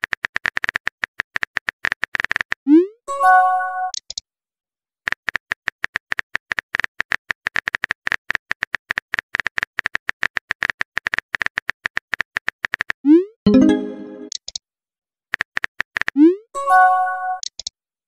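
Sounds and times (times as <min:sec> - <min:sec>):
phone message chime: 0:13.5 - 0:14.3.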